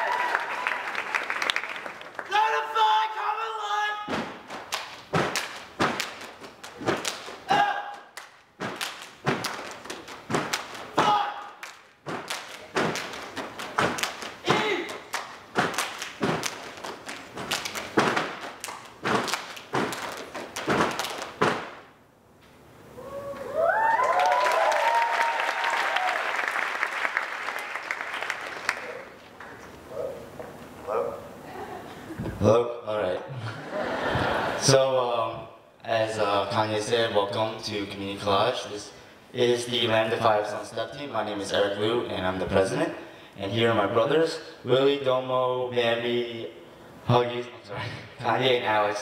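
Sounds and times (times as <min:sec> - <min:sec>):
audience clapping and cheering: 0:00.0 - 0:03.0, 0:11.4 - 0:21.4, 0:23.3 - 0:29.6
audience whooping: 0:00.0 - 0:03.2, 0:22.9 - 0:27.2
hand claps: 0:00.1 - 0:02.3, 0:04.5 - 0:07.4, 0:08.0 - 0:10.8, 0:11.4 - 0:21.8
person shouting: 0:02.3 - 0:04.1, 0:07.5 - 0:08.1, 0:11.0 - 0:11.6, 0:14.5 - 0:15.0
foot stomps: 0:04.1 - 0:21.9.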